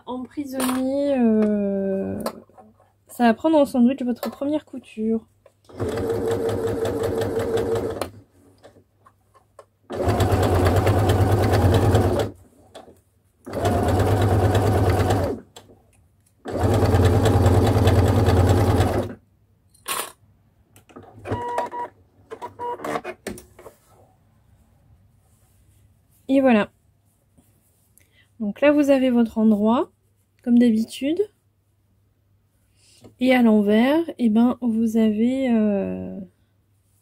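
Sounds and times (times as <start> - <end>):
sewing machine stitching: 5.7 - 8.2, 9.9 - 12.9, 13.5 - 15.5, 16.4 - 19.2.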